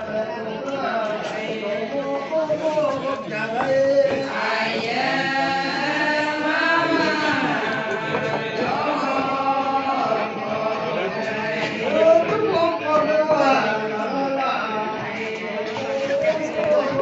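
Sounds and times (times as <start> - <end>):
women chanting in unison: 3.0 - 17.0.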